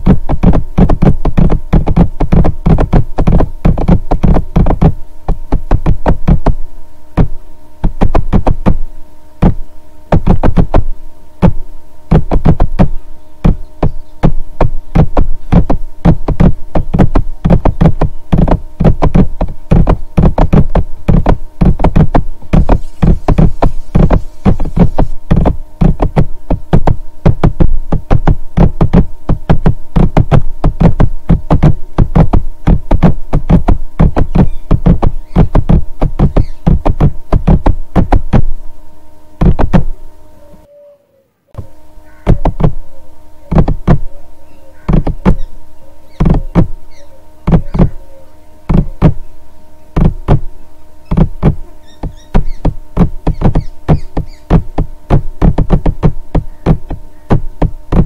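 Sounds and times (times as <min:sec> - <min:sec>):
low drum beat over held tones: 0:00.0 - 0:38.6, 0:39.4 - 0:40.0, 0:41.6 - 0:45.5, 0:46.2 - 0:49.3, 0:49.9 - 0:58.0.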